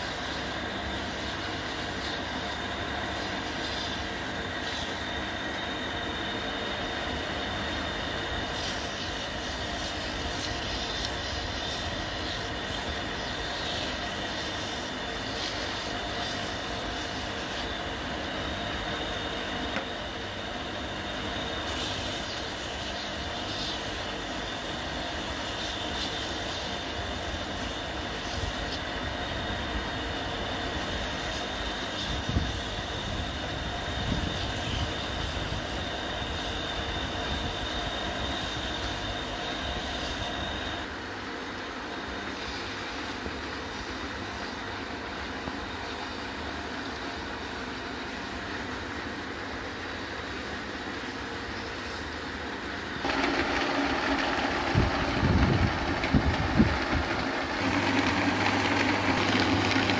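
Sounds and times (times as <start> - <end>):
sandpaper hissing on wood: 0.0 - 5.3, 8.3 - 17.9, 21.6 - 28.8, 30.6 - 40.9
small motor running: 0.0 - 40.9, 53.0 - 59.9.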